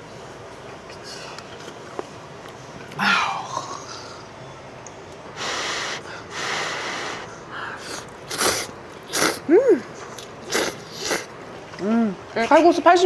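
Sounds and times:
slurping noodles: 5.4s - 9.4s, 10.2s - 11.3s.

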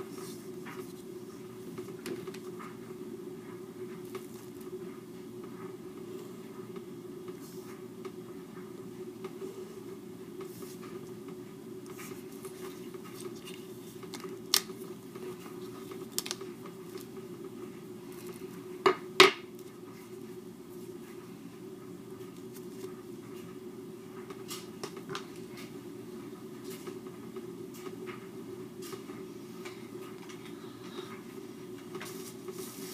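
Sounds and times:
low background hum: 0.0s - 32.9s.

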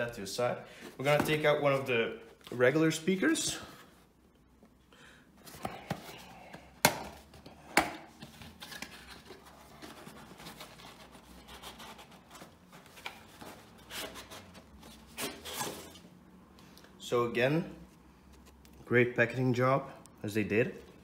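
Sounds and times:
cardboard packaging scratching and rustling: 8.4s - 16.0s.

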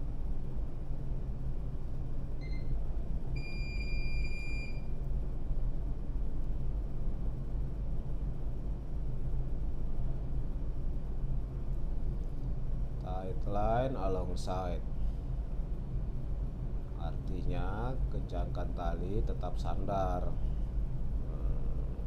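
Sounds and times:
electronic beep: 2.4s - 2.7s, 3.4s - 4.9s.

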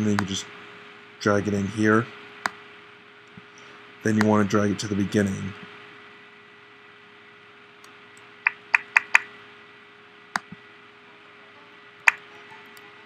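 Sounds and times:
faint steady hum: 0.0s - 13.0s
laptop clicks: 8.5s - 9.3s.

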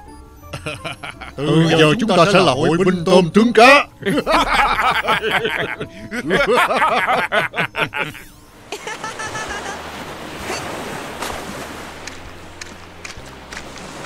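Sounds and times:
cartoon characters laughing: 0.5s - 2.8s, 4.0s - 9.8s
ocean waves and surf: 0.6s - 14.0s.

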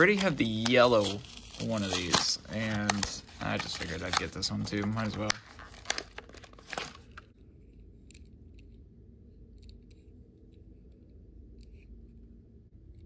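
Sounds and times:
plastic packaging crinkling: 0.0s - 7.3s
steady low hum: 6.4s - 13.0s.

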